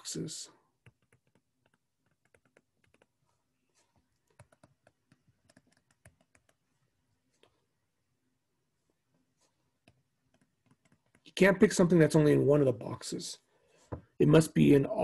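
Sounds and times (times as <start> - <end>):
stylus tapping on tablet screen: 0.8 - 3.2, 4.2 - 6.7, 9.8 - 11.4.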